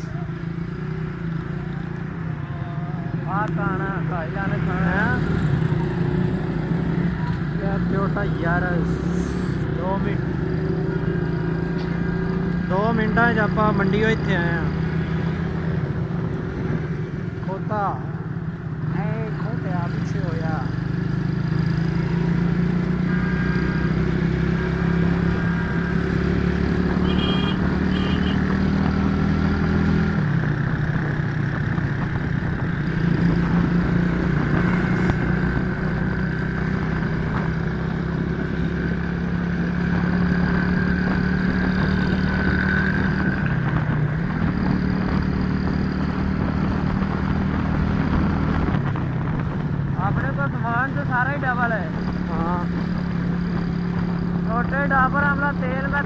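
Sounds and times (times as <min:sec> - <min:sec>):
motorcycle engine running: 0:00.0 - 0:56.0
wind and road noise: 0:00.0 - 0:56.0.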